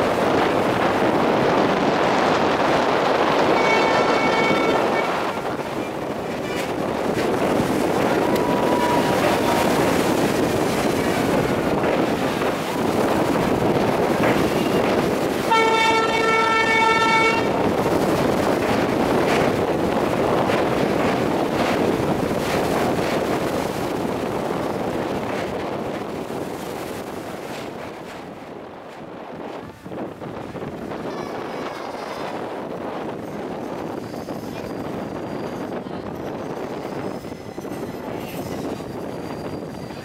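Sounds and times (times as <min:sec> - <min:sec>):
train rumbling on rails: 0:00.0 - 0:40.0
locomotive horn: 0:03.4 - 0:05.6, 0:14.6 - 0:17.7.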